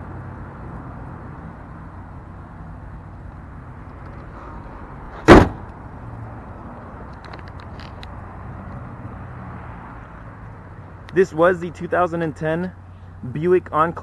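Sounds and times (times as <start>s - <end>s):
car hood slammed shut: 5.1s - 5.7s.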